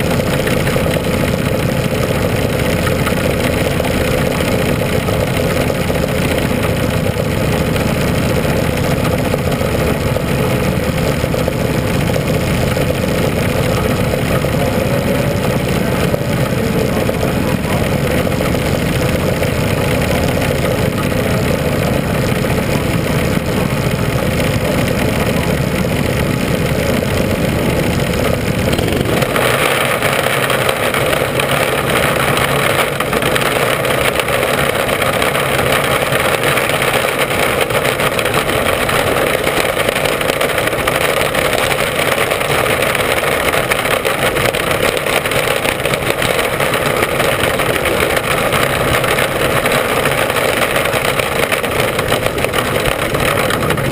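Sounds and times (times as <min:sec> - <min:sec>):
race car engine running hard: 0:00.0 - 0:53.9.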